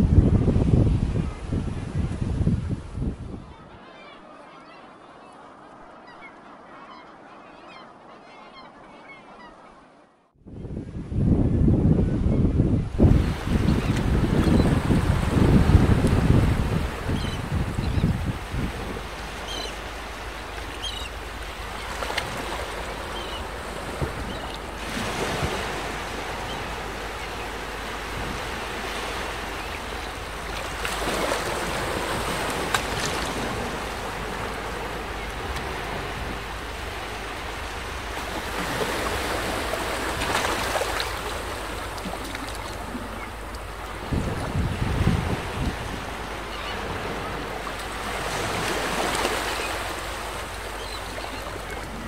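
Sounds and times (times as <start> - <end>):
sea surf: 0.0 - 10.1, 11.4 - 52.0
wind: 0.0 - 52.0
faint bird calls: 48.9 - 52.0.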